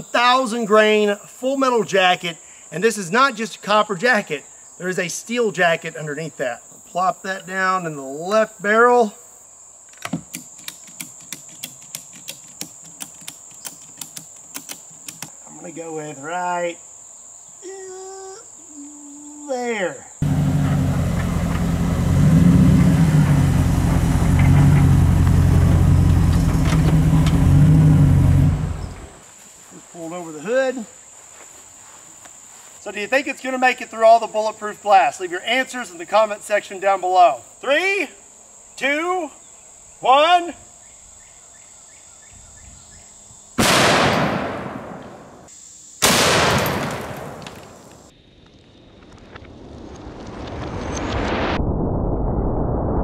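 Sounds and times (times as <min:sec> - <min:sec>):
crickets trilling: 0:00.0 - 0:20.3, 0:21.0 - 0:50.0
pickup truck engine running: 0:20.2 - 0:29.2
rifle shot with echo: 0:43.6 - 0:47.9.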